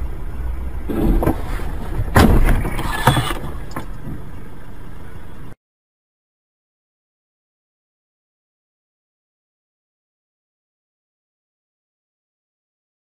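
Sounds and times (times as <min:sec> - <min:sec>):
low road rumble: 0:00.0 - 0:05.6
snow hitting car: 0:00.9 - 0:04.2.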